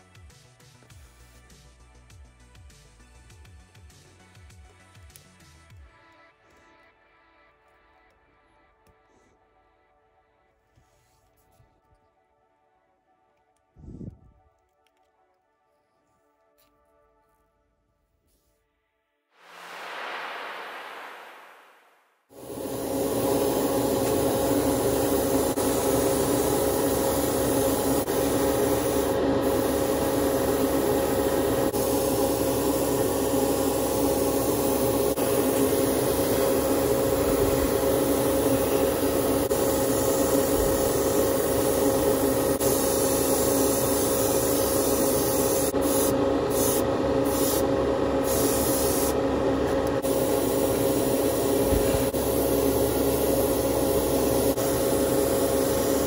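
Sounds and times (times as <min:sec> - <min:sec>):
airbrush hissing: 0:22.3 - 0:49.2, 0:49.9 - 0:56.0.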